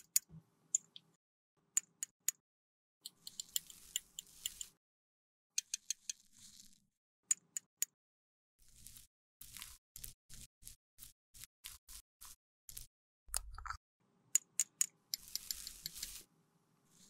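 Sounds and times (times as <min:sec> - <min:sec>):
powder scraping rustle: 0:03.4 - 0:04.7, 0:06.1 - 0:06.8, 0:08.6 - 0:12.9, 0:15.2 - 0:16.3.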